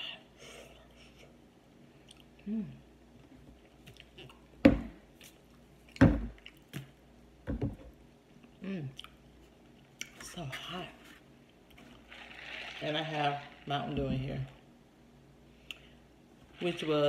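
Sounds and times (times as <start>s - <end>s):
person humming: 2.4s - 2.8s
person chewing hot food: 3.6s - 4.5s.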